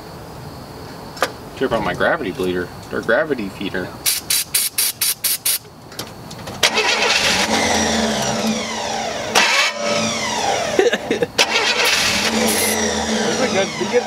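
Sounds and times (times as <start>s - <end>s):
starter fluid spray hisses: 4.0s - 5.7s, 11.4s - 14.0s
car engine firing and running: 6.4s - 14.0s.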